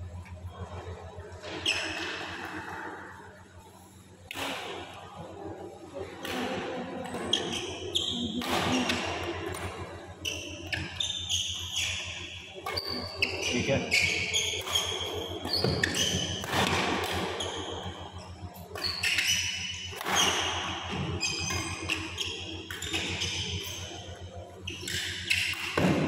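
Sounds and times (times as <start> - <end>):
shoes squeaking on court: 1.4 - 2.8, 7.1 - 25.8
racket striking shuttlecock: 14.6 - 17.7.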